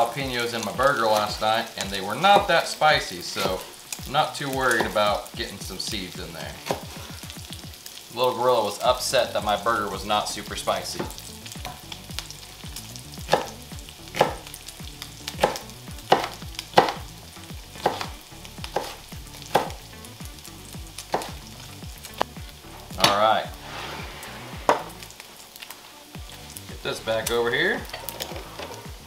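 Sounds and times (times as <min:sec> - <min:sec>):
bacon sizzling in skillet: 0:00.0 - 0:29.0
knife chopping on wooden board: 0:13.3 - 0:13.5, 0:15.4 - 0:17.0, 0:17.8 - 0:18.1, 0:18.7 - 0:19.8.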